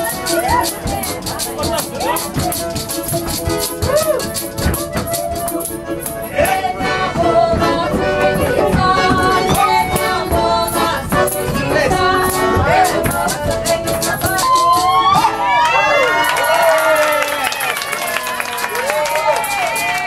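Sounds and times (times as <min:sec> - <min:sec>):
fast rattling percussion: 0:00.0 - 0:07.0, 0:08.6 - 0:15.3
accordion playing chords: 0:00.0 - 0:14.8
voices singing: 0:00.0 - 0:15.6
folk music ensemble: 0:00.0 - 0:20.0.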